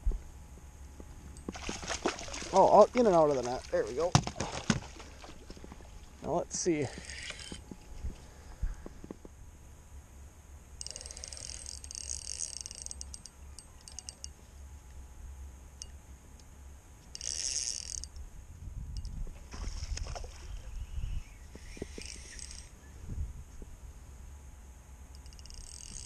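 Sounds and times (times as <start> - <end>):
wind rumble on microphone: 0.0 - 2.3, 7.6 - 9.6, 18.2 - 24.0
spinning reel whirring and clicking: 6.9 - 7.7, 10.8 - 14.4, 17.1 - 18.2, 21.6 - 22.7, 25.1 - 26.0.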